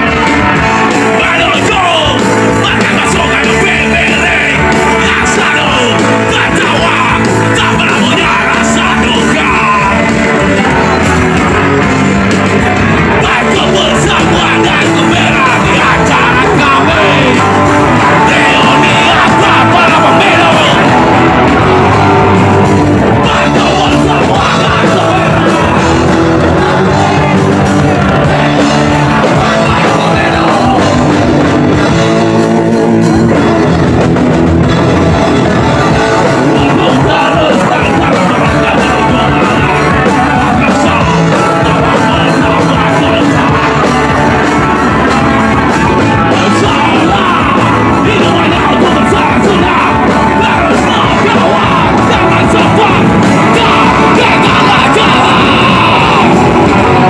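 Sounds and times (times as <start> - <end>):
shouted vocals: 0.0 - 33.8, 34.9 - 57.0
punk rock band playing loud: 0.0 - 57.0.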